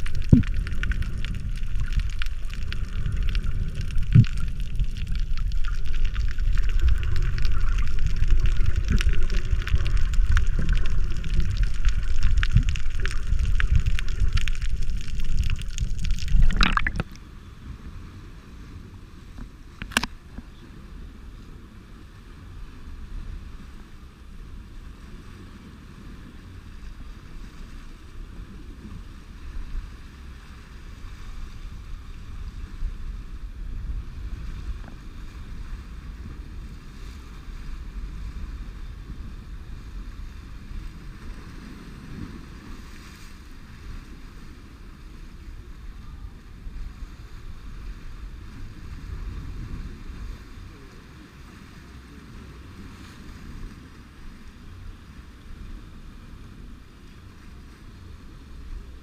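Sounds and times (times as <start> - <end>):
crackles and pops: 0.0 - 17.3, 19.4 - 20.6
surf washing over rocks: 0.0 - 59.0
underwater water rumble: 0.0 - 59.0.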